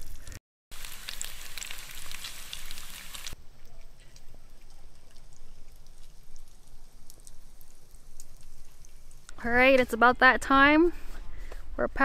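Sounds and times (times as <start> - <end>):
bacon sizzling in a hot pan: 0.0 - 3.4.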